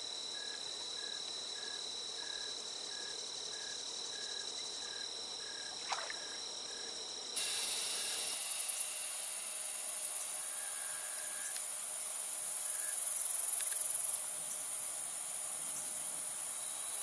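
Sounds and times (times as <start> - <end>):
insects trilling: 0.0 - 17.0
steady hiss: 7.4 - 17.0.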